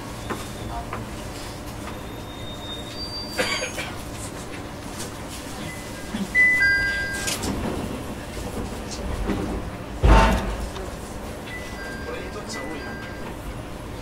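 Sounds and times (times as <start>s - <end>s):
train cabin noise: 0.0s - 14.0s
high beeps: 5.7s - 7.4s
electronic chime tones: 5.8s - 7.4s.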